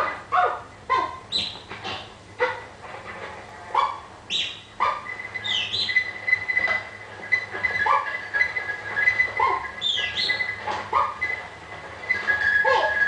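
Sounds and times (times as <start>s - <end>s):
sharp animal calls: 3.8s - 11.4s.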